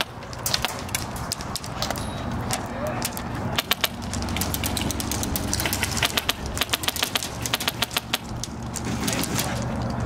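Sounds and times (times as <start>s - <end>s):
airsoft guns firing: 3.5s - 8.3s.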